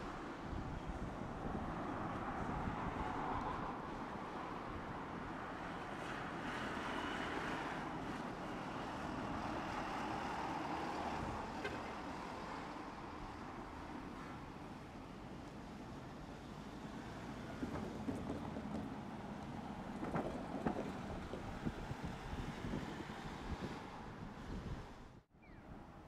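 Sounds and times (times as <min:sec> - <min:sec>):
wind on microphone: 0:00.0 - 0:05.0, 0:20.0 - 0:25.2
streetcar rolling on tracks: 0:00.0 - 0:25.0
street traffic noise: 0:00.0 - 0:26.0.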